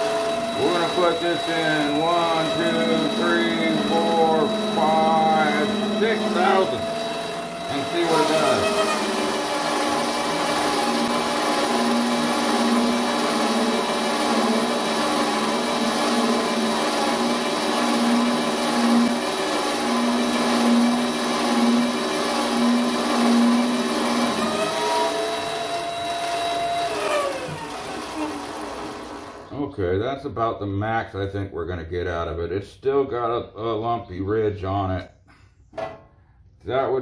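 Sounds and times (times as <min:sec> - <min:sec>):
lathe motor whine: 0:00.0 - 0:29.5
pulsing hum: 0:00.4 - 0:11.4
higher steady tone: 0:00.6 - 0:09.1.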